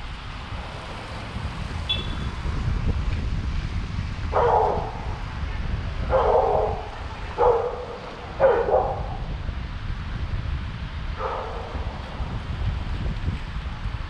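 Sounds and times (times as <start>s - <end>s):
wind rumbling on microphone: 0.0s - 14.0s
dog barking: 4.3s - 5.2s, 6.0s - 9.3s, 11.2s - 11.9s.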